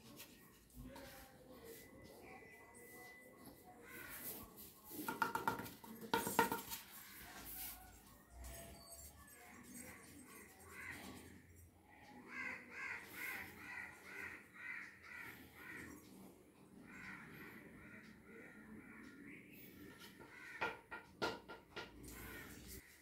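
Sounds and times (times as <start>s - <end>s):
crows cawing: 3.8s - 4.4s, 10.7s - 11.4s, 12.0s - 16.2s, 16.8s - 23.0s.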